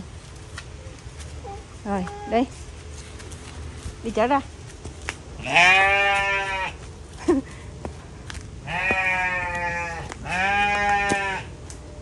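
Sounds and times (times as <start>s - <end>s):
sheep bleating: 5.4s - 6.8s, 8.7s - 11.5s.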